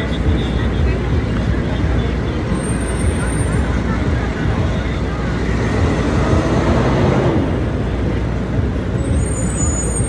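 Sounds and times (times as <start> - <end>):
passing traffic rumble: 0.0 - 10.0
brief high-pitched squeal: 9.1 - 10.0.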